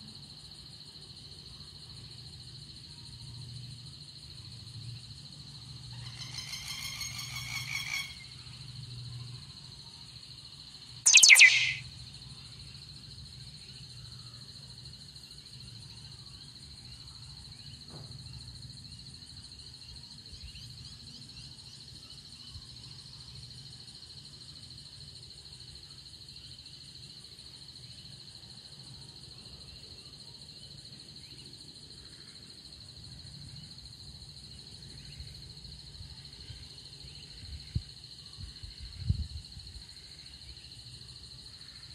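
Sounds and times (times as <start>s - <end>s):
loud short bird call: 11.1s - 11.8s
insects droning: 12.5s - 41.9s.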